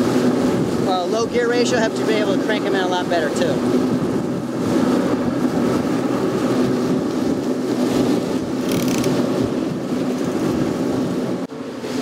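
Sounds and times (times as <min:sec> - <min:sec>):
outboard engines running: 0:00.0 - 0:12.0
wake water rushing: 0:00.0 - 0:12.0
wind rushing: 0:00.0 - 0:12.0.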